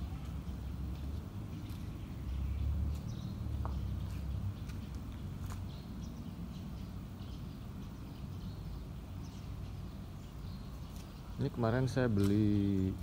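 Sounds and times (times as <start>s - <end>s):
small birds chirping faintly: 0.0s - 13.0s.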